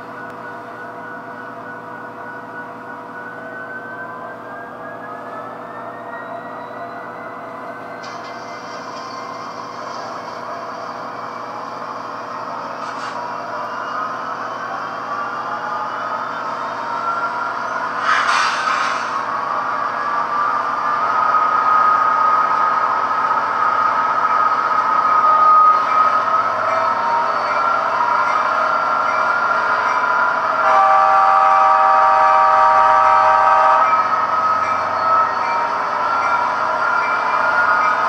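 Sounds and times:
model locomotive engine whine: 0:00.0 - 0:38.0
locomotive horn blast: 0:30.6 - 0:34.1.

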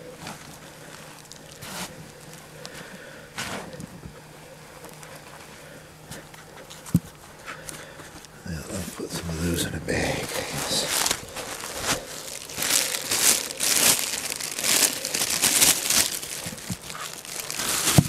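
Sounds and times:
plastic bag crinkling: 0:08.6 - 0:18.0.

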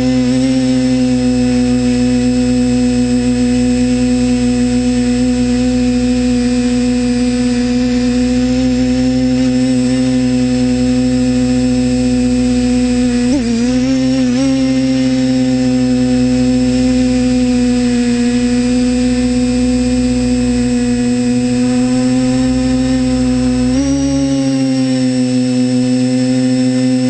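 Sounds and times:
drone propellers humming: 0:00.0 - 0:27.0.

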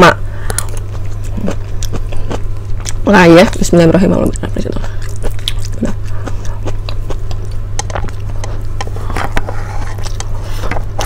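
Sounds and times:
steady low hum: 0:00.0 - 0:11.0
wet chewing: 0:00.4 - 0:11.0
lip smacks: 0:05.0 - 0:08.5.

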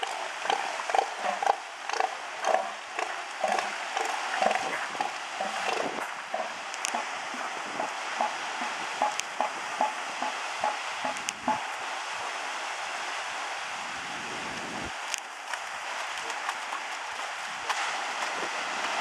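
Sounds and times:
elephant seal pulsed call: 0:00.0 - 0:11.7
steady hiss: 0:00.0 - 0:19.0.

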